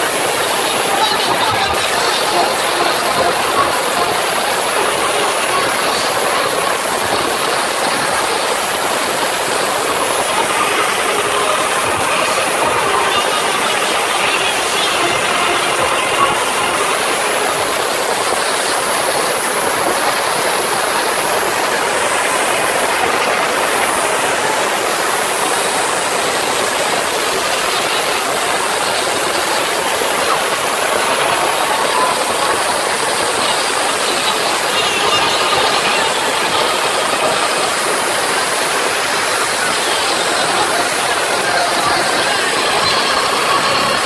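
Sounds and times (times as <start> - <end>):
crowd cheering and screaming: 0.0 - 44.0.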